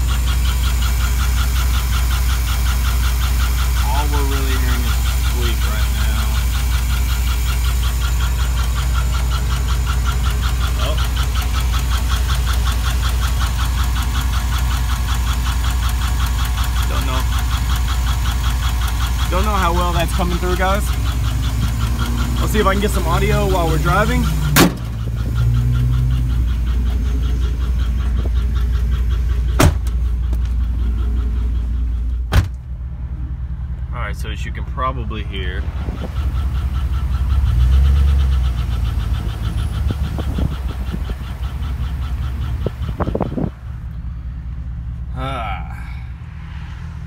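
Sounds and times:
fast even engine tick: 0.0s - 32.2s, 33.8s - 44.0s
car engine idling: 0.0s - 47.0s
sharp engine knock: 17.4s - 25.0s, 27.9s - 30.6s.

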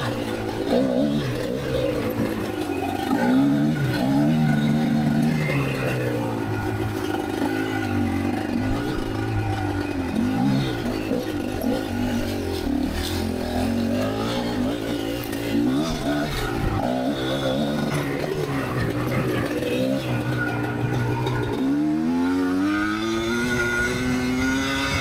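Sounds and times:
dirt bike engine revving: 0.0s - 25.0s.

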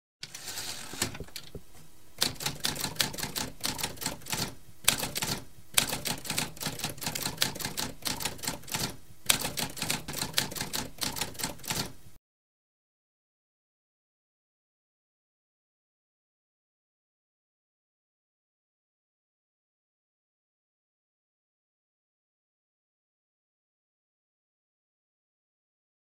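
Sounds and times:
typewriter key clacks: 2.2s - 12.0s.

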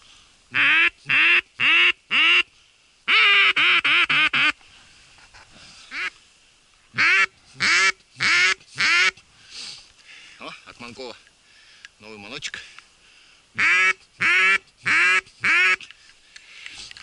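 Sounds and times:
duck call quacking: 0.5s - 2.5s, 3.1s - 4.6s, 5.9s - 6.1s, 6.9s - 9.2s, 13.6s - 15.9s.

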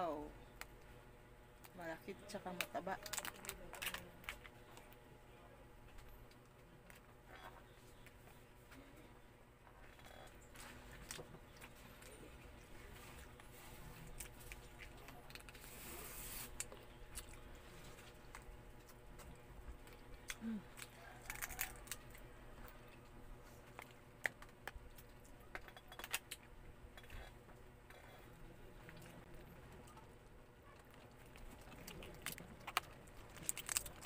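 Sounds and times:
crab shell cracking: 18.3s - 22.3s, 30.8s - 34.0s.

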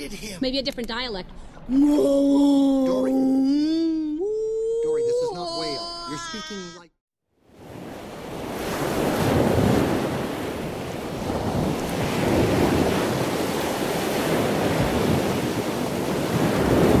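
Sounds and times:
ocean waves washing: 7.4s - 17.0s.

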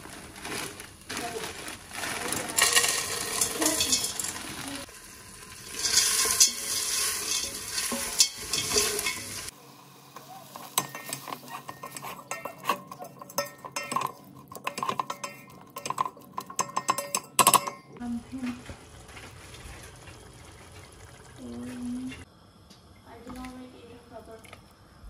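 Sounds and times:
utensil stirring and scraping pan: 2.0s - 9.5s, 10.1s - 22.2s
food sizzling in a pan: 2.5s - 16.0s.

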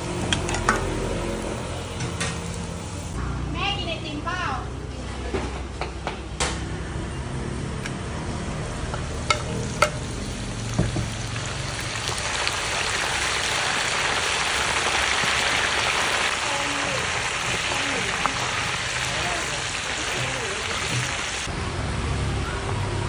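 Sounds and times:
meat sizzling in hot oil: 8.8s - 21.5s.

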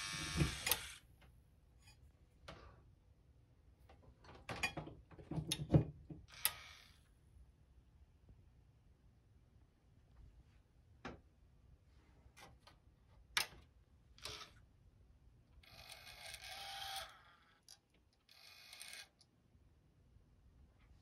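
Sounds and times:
motor whirring: 0.0s - 1.0s, 15.7s - 17.4s.

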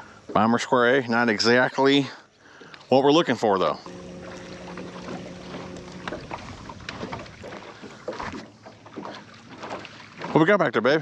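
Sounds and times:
electric trolling motor humming: 3.8s - 8.6s.

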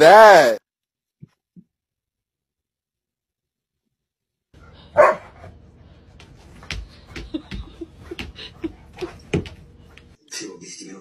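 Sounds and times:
dog barking: 4.9s - 5.4s.

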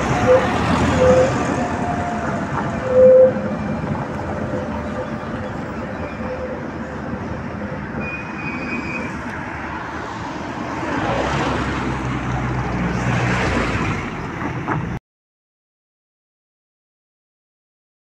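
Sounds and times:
vehicle engine approaching: 0.0s - 8.0s
road traffic noise: 0.0s - 15.0s.

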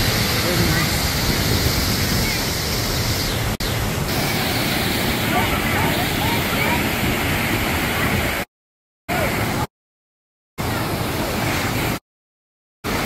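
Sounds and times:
waterfall pouring into pool: 0.0s - 8.4s.

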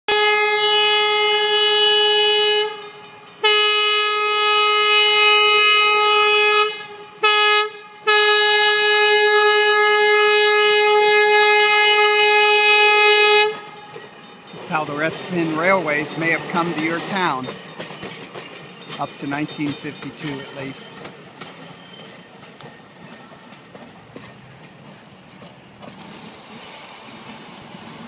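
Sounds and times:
trolley horn blasts: 0.1s - 14.1s.

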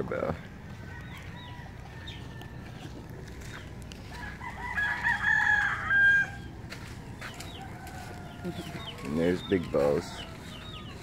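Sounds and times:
rooster crowing: 0.7s - 2.9s, 4.0s - 6.6s, 7.2s - 11.0s.

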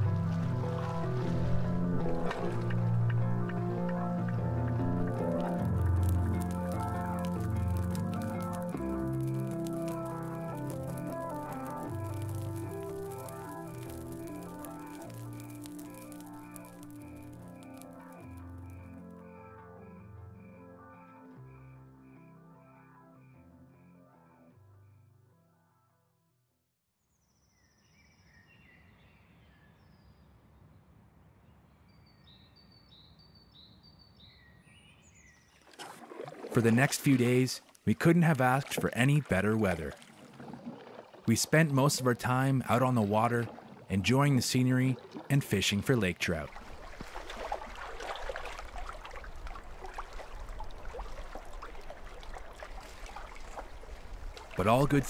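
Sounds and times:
water lapping against a canoe: 0.0s - 18.9s, 35.0s - 55.0s
forest birds singing: 27.1s - 30.8s, 31.5s - 35.7s.

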